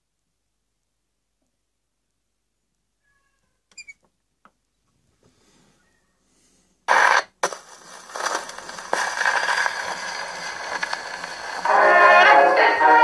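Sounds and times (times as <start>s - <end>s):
record surface hiss and crackle: 0.0s - 13.0s
needle scraping on record: 6.9s - 13.0s.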